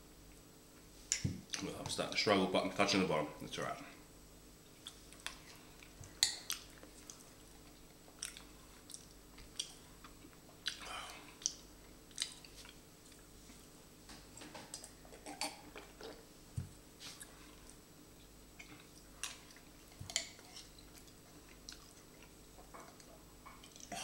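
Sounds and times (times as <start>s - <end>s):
wet chewing and swallowing: 4.8s - 13.3s, 17.0s - 24.0s.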